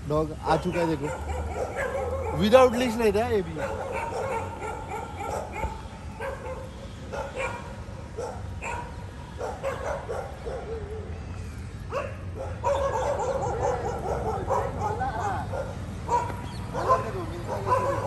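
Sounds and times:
dog barking: 0.5s - 2.8s, 3.5s - 11.1s, 11.9s - 18.0s.

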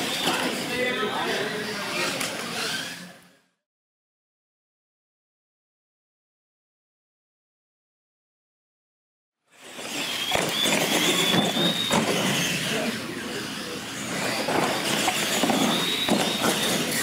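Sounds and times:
toy truck motors whining: 0.0s - 3.5s, 9.5s - 17.0s
tyres rumbling on concrete: 9.8s - 13.0s, 14.0s - 17.0s.

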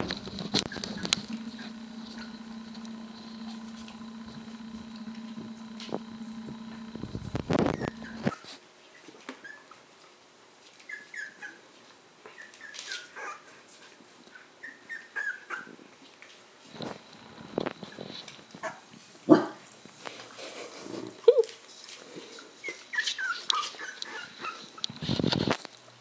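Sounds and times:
puppies squeaking and whimpering: 0.0s - 2.3s, 10.9s - 11.6s, 14.4s - 15.8s, 22.6s - 25.0s.

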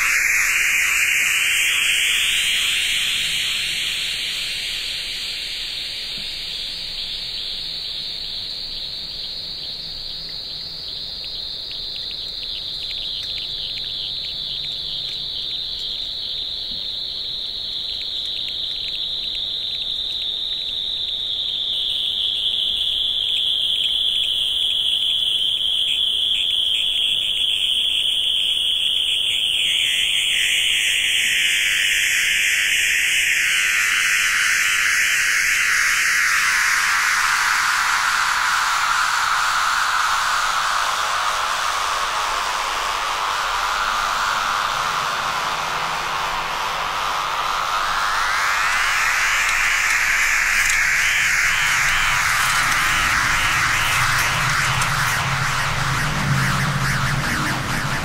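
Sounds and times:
thin higher hiss: 0.0s - 10.3s, 21.8s - 57.5s
electric buzzing drone: 37.2s - 58.0s.

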